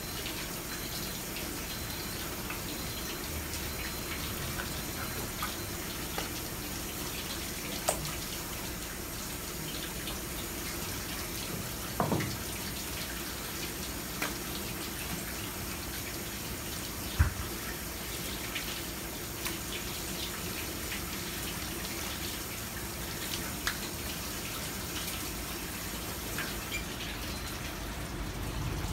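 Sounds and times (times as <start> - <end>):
tap water running onto board: 11.4 - 12.8.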